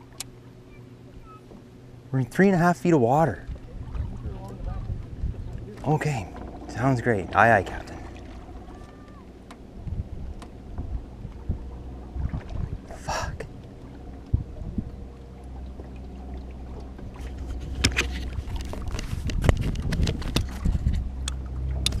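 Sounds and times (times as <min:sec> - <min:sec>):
boat motor humming: 0:00.0 - 0:22.0
wind on microphone: 0:03.3 - 0:15.2, 0:16.6 - 0:22.0
camera knocking and rattling: 0:17.4 - 0:21.0.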